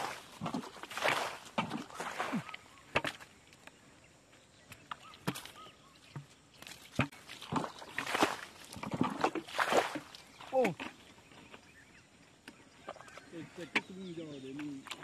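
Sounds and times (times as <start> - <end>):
water splashing from bucket: 0.0 - 3.2, 5.0 - 11.0.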